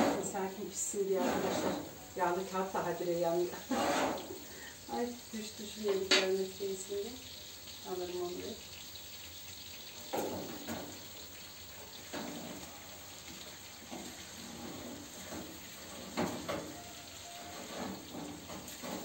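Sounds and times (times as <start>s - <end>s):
food sizzling in a baking tray: 0.0s - 19.0s
baking tray knocks and scrapes: 1.2s - 1.9s, 3.7s - 4.3s, 15.3s - 16.8s.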